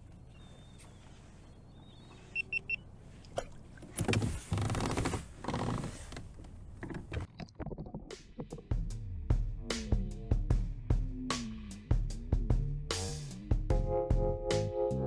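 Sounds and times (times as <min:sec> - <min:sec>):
quick electronic beeps: 0:02.3 - 0:02.8.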